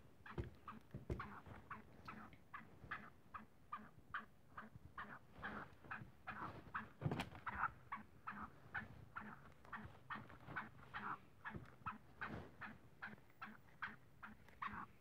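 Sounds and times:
bird clucking: 0.2s - 15.0s.

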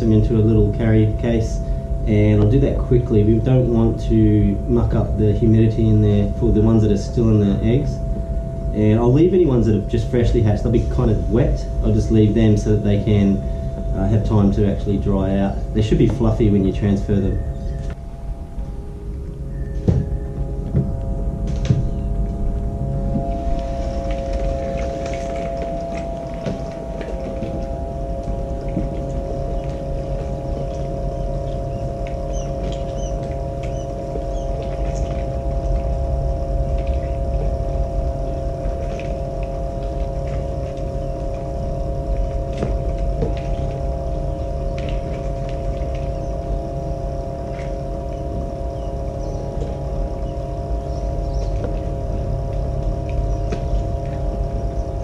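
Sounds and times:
incubator fan humming: 0.0s - 55.0s
chicks peeping: 28.6s - 37.6s, 39.8s - 55.0s.

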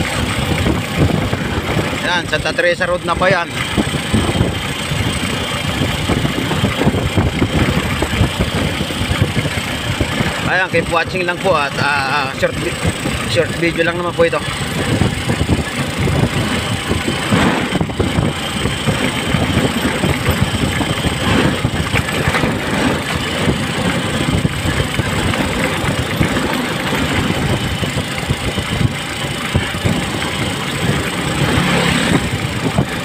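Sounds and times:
road noise: 0.0s - 33.0s
vehicle engine running: 0.0s - 33.0s
vehicle body clatter: 14.4s - 33.0s.

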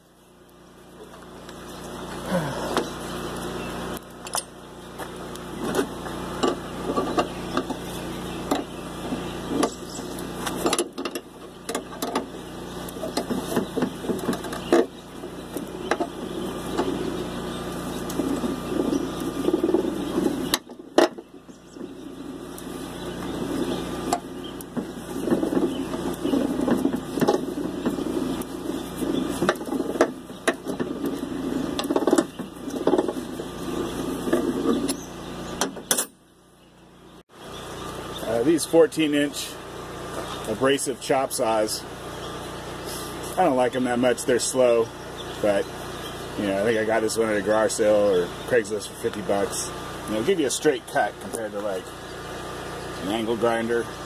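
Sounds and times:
welding arc crackling: 0.0s - 34.3s.

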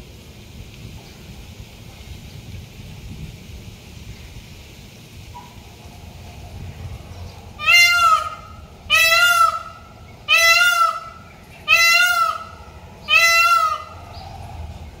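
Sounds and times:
peafowl calling: 7.6s - 14.4s.

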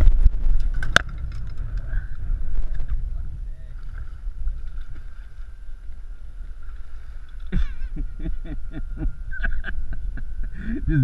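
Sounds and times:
wind rumbling on microphone: 0.0s - 11.0s
thin high whine: 5.6s - 11.0s
man calling out: 10.7s - 11.0s.

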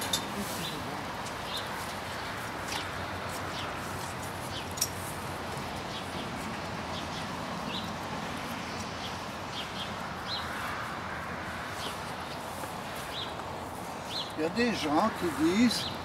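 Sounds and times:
steady outdoor hiss: 0.0s - 16.0s.

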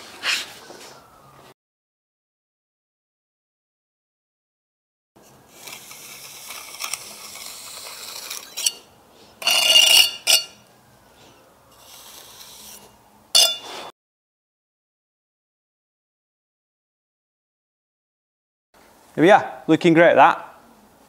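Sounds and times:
trowel scraping mortar: 5.5s - 10.6s, 11.8s - 13.9s
steel clinking on brick: 5.7s - 10.6s, 13.4s - 13.8s.

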